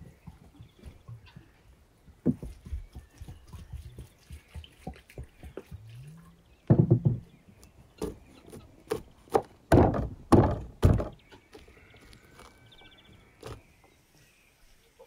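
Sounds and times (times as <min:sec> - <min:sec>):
jug knocking on wooden table: 0:06.7 - 0:07.3, 0:09.7 - 0:11.2
garlic thumped on wooden board: 0:08.9 - 0:11.2.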